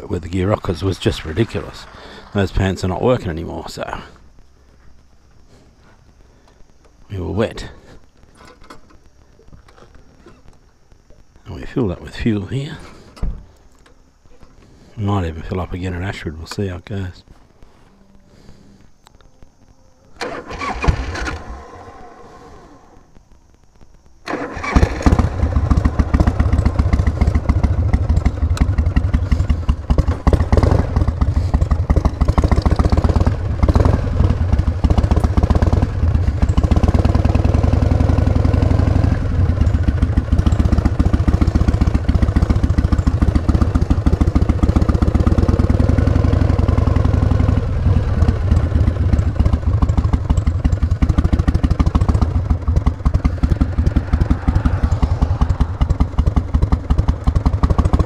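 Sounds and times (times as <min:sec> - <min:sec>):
motorcycle engine running: 0:24.3 - 0:58.0.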